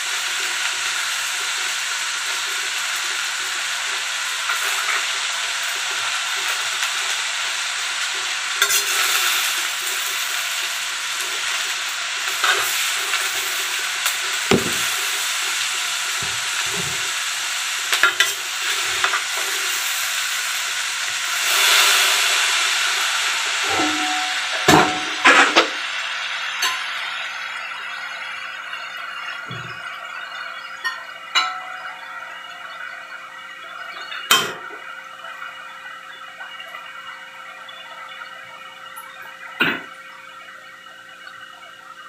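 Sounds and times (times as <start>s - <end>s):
cabbage sizzling in hot oil: 0.0s - 42.0s.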